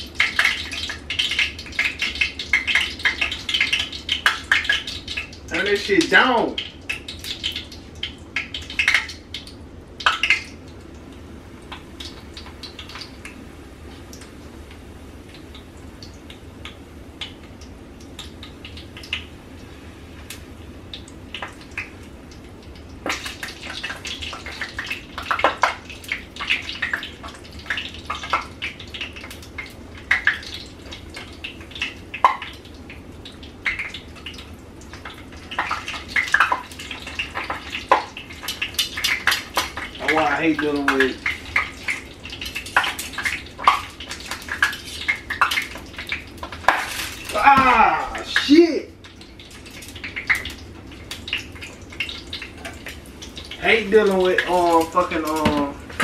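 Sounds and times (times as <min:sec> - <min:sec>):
hot oil crackling and popping: 0:00.0 - 0:56.0.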